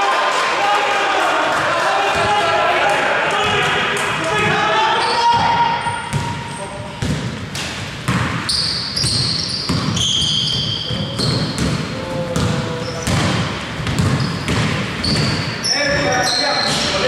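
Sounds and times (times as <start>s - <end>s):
basketball bouncing on court: 3.4s - 3.7s, 5.3s - 17.0s
sneakers squeaking on floor: 4.4s - 17.0s.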